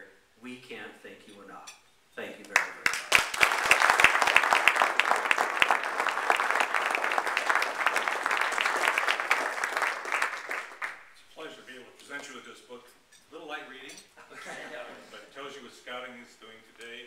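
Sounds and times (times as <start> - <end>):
audience applauding: 2.6 - 11.1.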